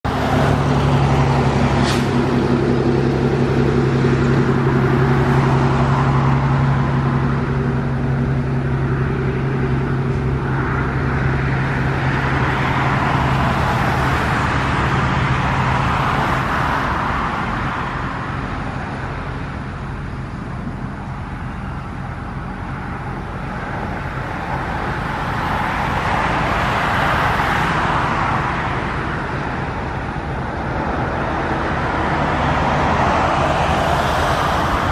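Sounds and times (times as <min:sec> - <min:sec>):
engine humming low: 0:00.0 - 0:34.9
passing vehicles rushing: 0:00.0 - 0:34.9.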